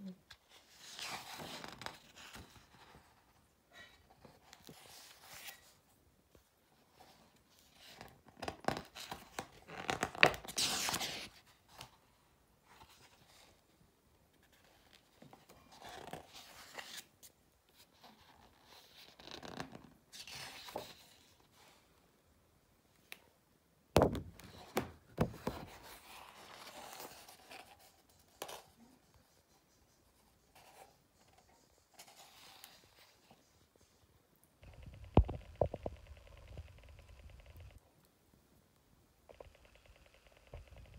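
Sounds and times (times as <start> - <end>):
book pages rustling: 0.3 - 3.4, 14.4 - 21.8, 24.4 - 33.6.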